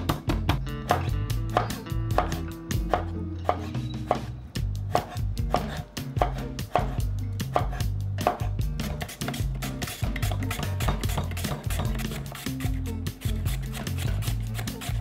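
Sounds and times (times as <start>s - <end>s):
knife slicing cucumber: 4.9s - 15.0s.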